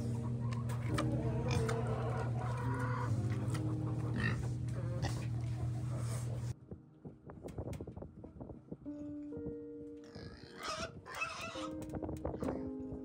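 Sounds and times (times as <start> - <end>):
hens clucking: 0.0 - 6.5
low hum: 0.0 - 9.7.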